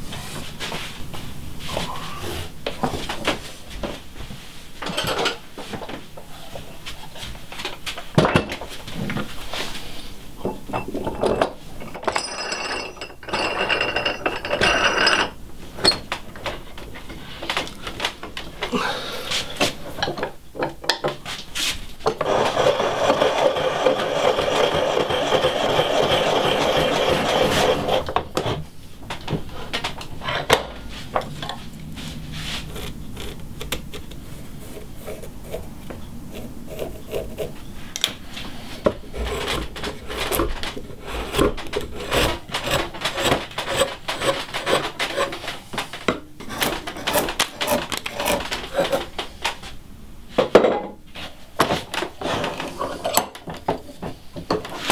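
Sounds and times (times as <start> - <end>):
drill bit boring into wood: 22.2 - 28.0
carving gouge scraping wood: 22.2 - 28.2, 32.4 - 45.6, 46.4 - 49.2.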